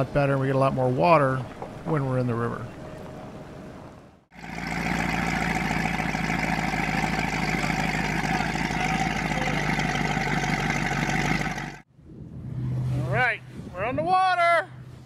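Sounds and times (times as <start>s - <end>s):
boat engine idling: 4.3s - 11.8s.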